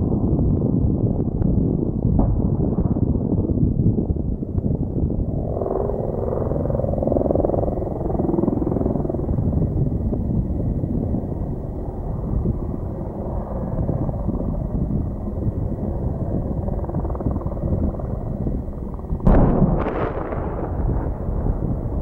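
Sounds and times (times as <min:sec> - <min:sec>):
helicopter rumble: 0:00.0 - 0:22.0
explosion crack: 0:02.1 - 0:03.5, 0:19.3 - 0:21.7
explosive charge bang: 0:02.2 - 0:03.3, 0:19.3 - 0:21.6.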